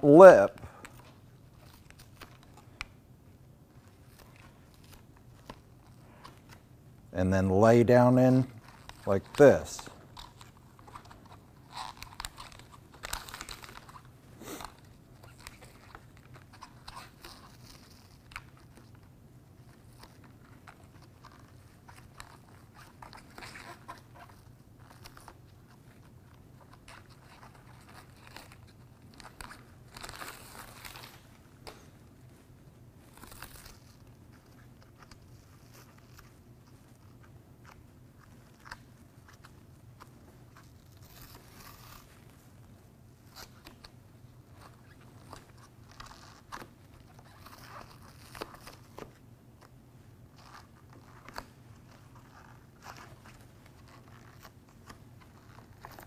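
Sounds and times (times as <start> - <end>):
low steady hum: 0.0 - 56.0
foam strip rustling and crinkling: 7.9 - 56.0.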